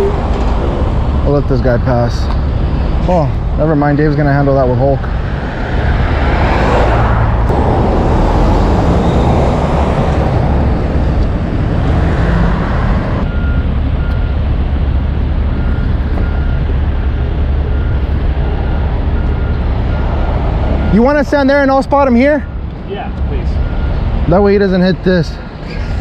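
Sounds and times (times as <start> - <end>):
car passing: 0.0 - 13.5
heavy truck engines rumbling: 0.0 - 26.0.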